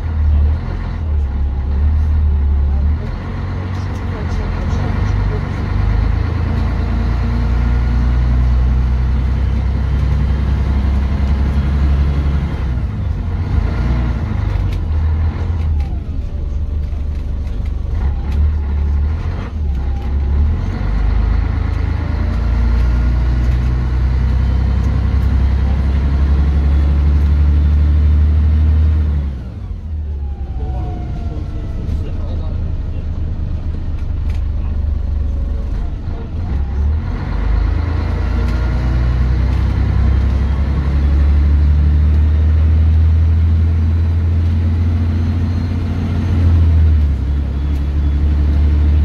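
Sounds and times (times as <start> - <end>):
bus diesel engine drone: 0.0 - 49.0.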